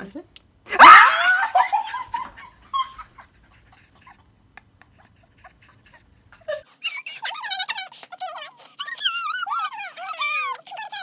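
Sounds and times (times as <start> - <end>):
woman squealing: 0.7 - 1.6, 6.5 - 11.0.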